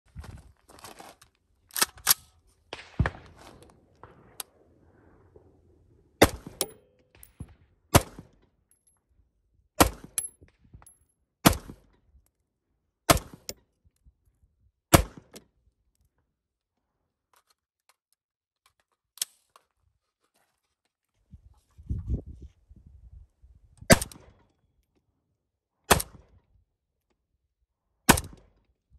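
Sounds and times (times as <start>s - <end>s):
rifle shots: 2.7s - 5.4s, 6.2s - 6.8s, 7.9s - 8.3s.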